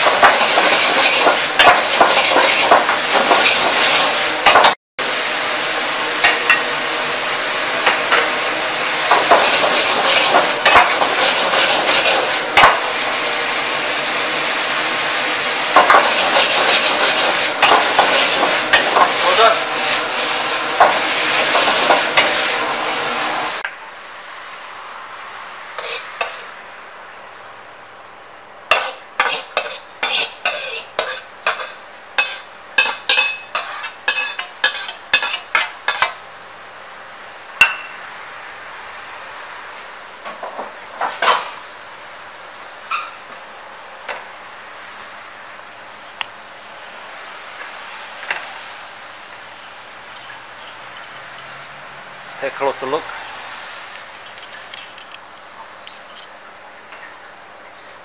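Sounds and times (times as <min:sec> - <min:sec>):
food sizzling in a wok: 0:00.0 - 0:23.6, 0:25.8 - 0:26.7, 0:28.7 - 0:36.3, 0:41.0 - 0:43.0
metal ladle clanking and scraping: 0:25.8 - 0:26.5, 0:28.7 - 0:36.2.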